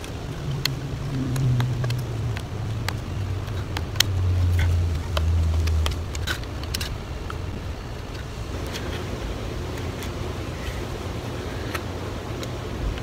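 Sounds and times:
low motor rumble: 0:00.0 - 0:13.0.

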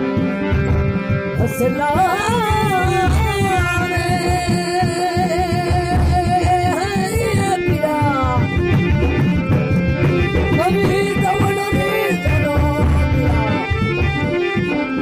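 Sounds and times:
hand drum beat: 0:00.0 - 0:15.0
harmonium sustained tones: 0:00.0 - 0:15.0
man singing devotional song: 0:01.4 - 0:08.5, 0:10.6 - 0:13.7.

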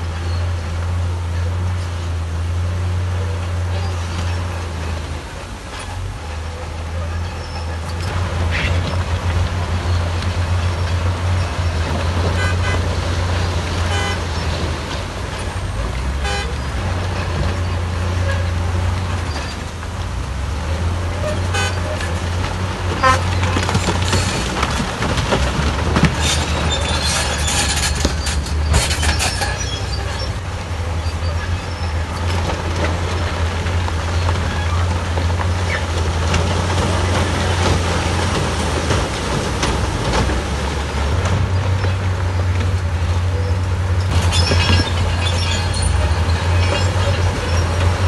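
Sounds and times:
bulldozer diesel engine droning: 0:00.0 - 0:48.0
horn toots: 0:12.2 - 0:14.5, 0:16.2 - 0:16.8, 0:21.2 - 0:22.2, 0:22.9 - 0:23.7.

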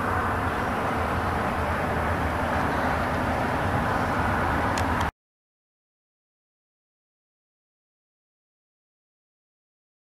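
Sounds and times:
low boat motor hum: 0:00.0 - 0:05.1.

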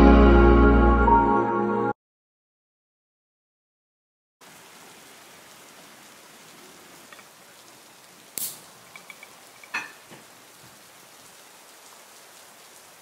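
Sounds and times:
rain hissing: 0:04.4 - 0:13.0
lighter clicking: 0:08.4 - 0:08.7.

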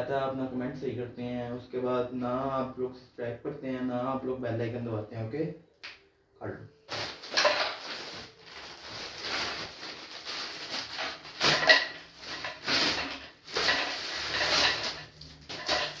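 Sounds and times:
plastic bag tearing and crinkling: 0:06.9 - 0:16.0
plastic-wrapped bottle rustling: 0:06.9 - 0:16.0.

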